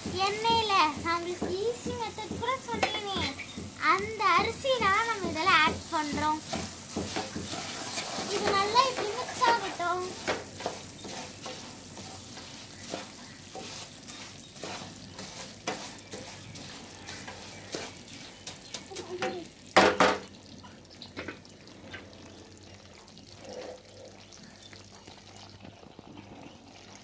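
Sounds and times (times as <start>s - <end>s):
spatula scraping a pan: 0.0s - 19.4s.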